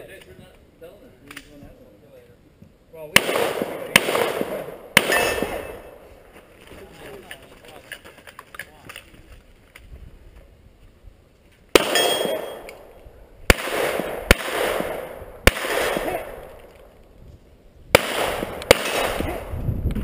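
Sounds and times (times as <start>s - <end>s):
gunshots: 3.1s - 6.2s, 11.7s - 16.9s, 17.9s - 19.6s.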